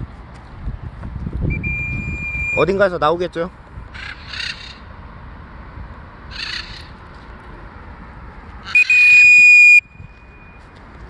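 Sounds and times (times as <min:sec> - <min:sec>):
high-pitched whistle tone: 0:01.5 - 0:02.7, 0:08.8 - 0:10.6
harsh bird squawks: 0:03.9 - 0:04.9, 0:06.3 - 0:07.0, 0:08.6 - 0:09.8.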